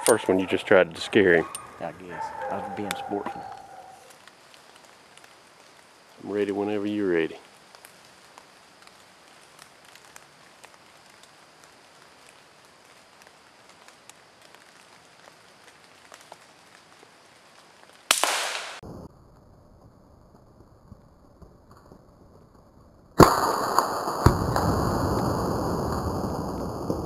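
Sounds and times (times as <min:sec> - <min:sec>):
dripping rain ticks: 0:04.1 - 0:18.1
rifle shot: 0:18.1 - 0:18.8.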